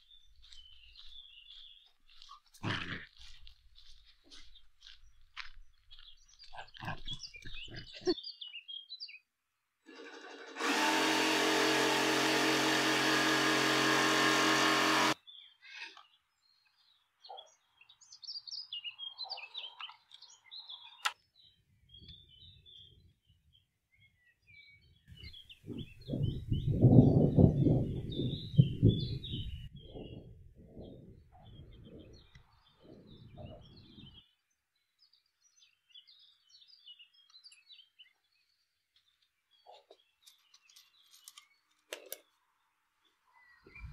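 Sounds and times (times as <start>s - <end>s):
birds chirping: 0.0s - 9.5s, 11.3s - 43.9s
power tool running: 9.9s - 15.2s.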